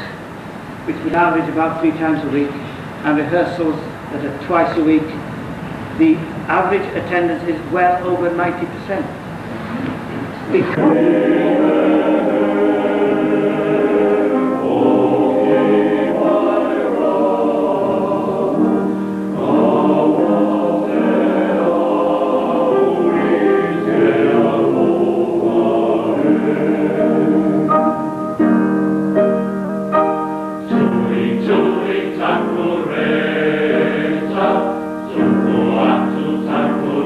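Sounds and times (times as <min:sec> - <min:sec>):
electronic organ: 0:10.5 - 0:37.0
male voice choir singing: 0:10.6 - 0:27.9, 0:30.7 - 0:37.0.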